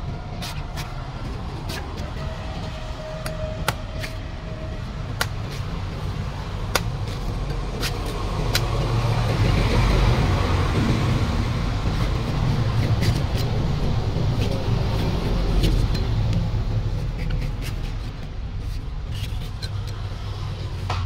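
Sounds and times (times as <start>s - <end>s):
cleaver chopping coconut husk: 3.2s - 4.2s, 5.1s - 9.9s.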